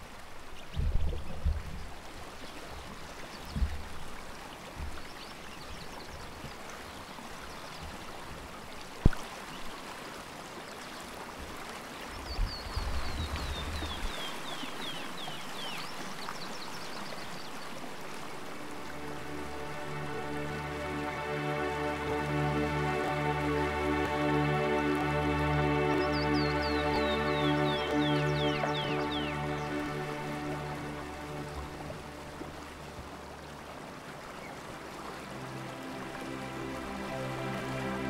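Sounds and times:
running water rushing: 0.0s - 38.0s
soft music: 12.9s - 38.0s
bird chirping: 25.9s - 31.7s.

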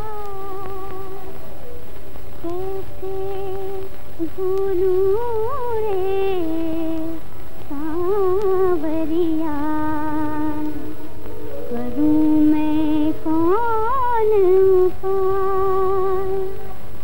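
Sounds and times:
woman humming a melody: 0.0s - 1.6s, 2.4s - 11.0s
steady low soundtrack hum: 7.8s - 15.2s.

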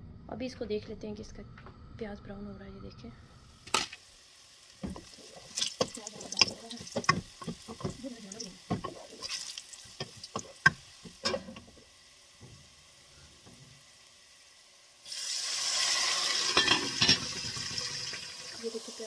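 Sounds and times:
steady hiss: 3.4s - 19.0s
wooden spoon scraping pot: 4.8s - 11.8s
lid knocking on pot: 5.8s - 8.1s.

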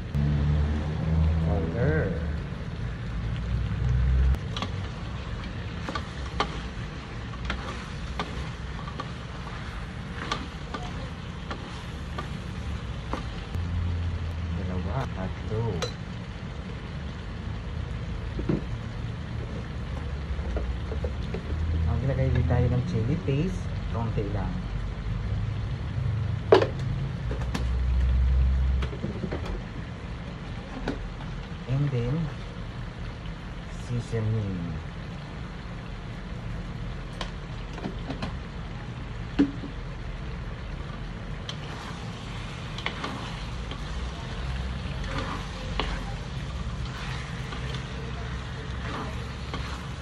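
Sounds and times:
cooking hiss and hum: 0.0s - 50.0s
spatula scraping a metal wok: 5.8s - 12.3s, 41.6s - 50.0s.

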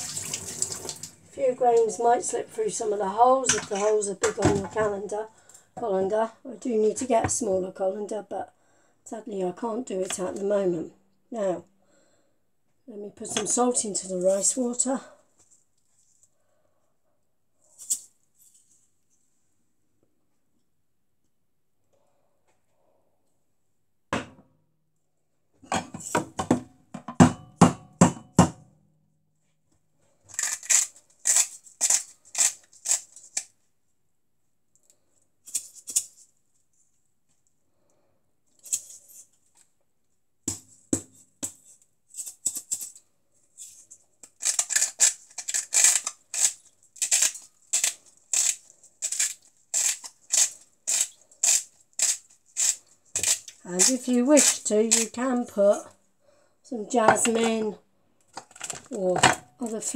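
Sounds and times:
salt shaker rattling: 44.4s - 55.1s.

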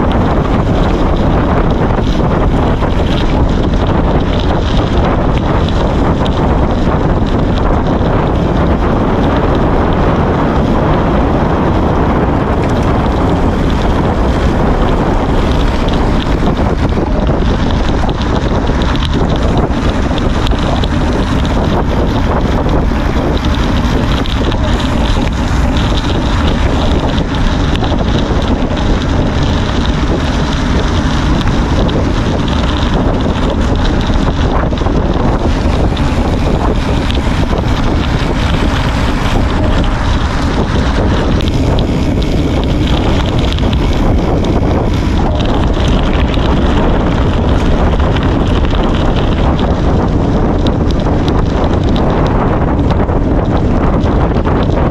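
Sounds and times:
wind buffeting microphone: 0.0s - 54.9s.

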